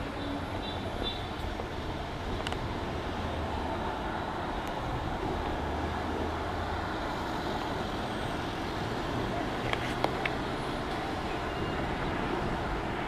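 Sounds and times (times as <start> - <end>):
road noise: 0.0 - 13.0.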